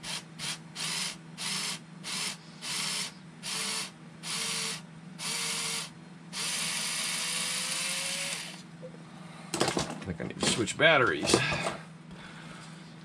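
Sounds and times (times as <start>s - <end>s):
small electric motor whirring: 0.0s - 8.6s.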